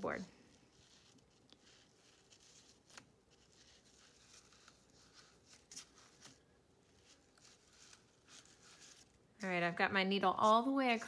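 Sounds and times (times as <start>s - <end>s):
faint rustling of yarn: 0.0s - 11.0s.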